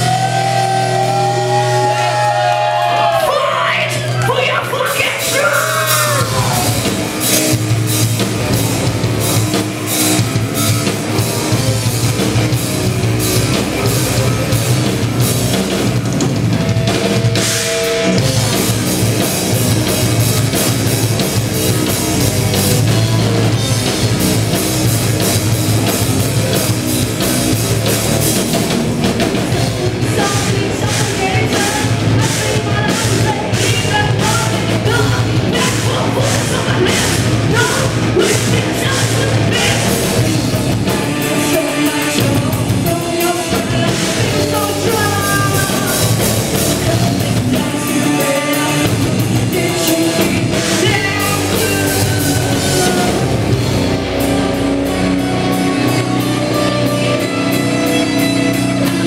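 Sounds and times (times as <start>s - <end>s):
heavy metal band playing: 0.0s - 59.0s
person singing: 3.0s - 6.9s, 30.1s - 40.0s, 40.7s - 53.4s, 55.5s - 59.0s.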